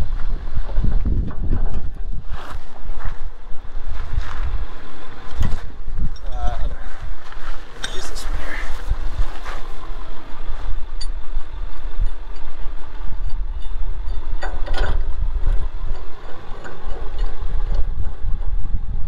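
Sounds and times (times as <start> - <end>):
steady low rumble: 0.0 - 19.0
metal clatter: 10.7 - 18.7.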